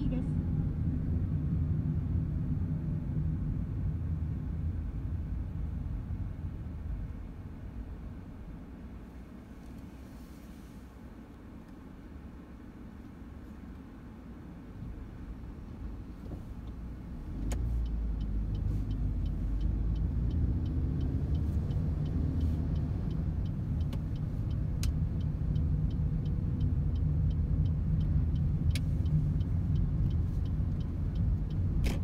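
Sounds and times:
engine and tyre rumble: 0.0 - 32.0
light ticking: 16.6 - 32.0.

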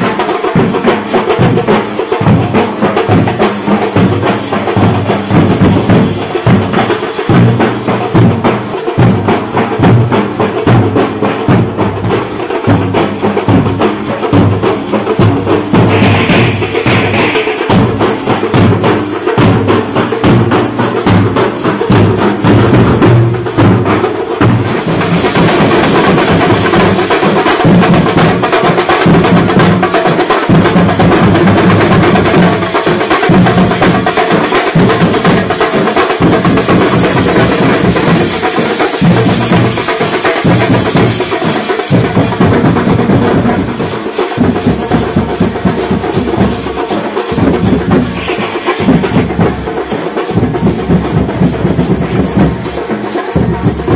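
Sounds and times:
fast continuous drumming: 0.0 - 53.9.

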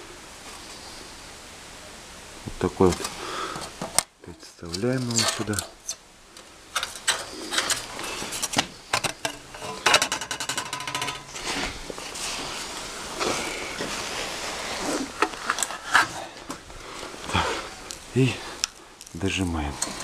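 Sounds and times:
sharp metal clicks and knocks: 6.7 - 11.4
metal rattle: 6.7 - 11.7
sheet metal clattering and scraping: 6.8 - 11.8.

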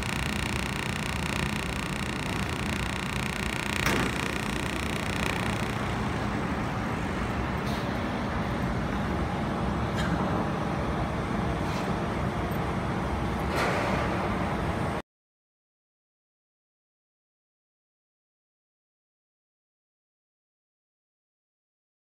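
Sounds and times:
laser welding machine humming: 0.0 - 7.5.

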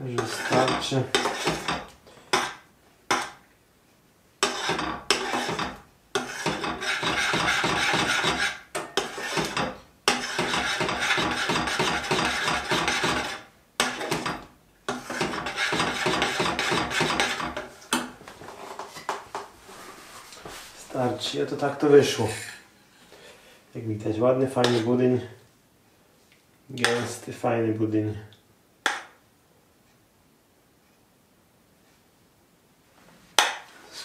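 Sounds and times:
metal spoon scraping saucepan: 0.0 - 2.6, 4.4 - 17.7, 24.5 - 25.0.

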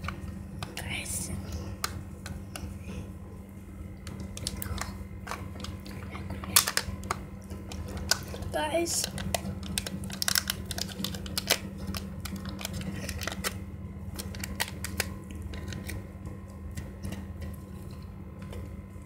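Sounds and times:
low hum: 0.0 - 19.0
thin plastic crinkling: 4.1 - 16.0.

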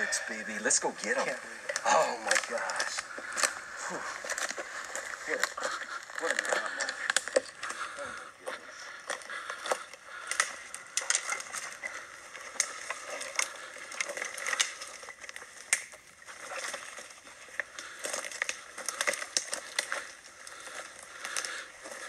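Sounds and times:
footsteps crunching through twigs: 0.0 - 22.0.

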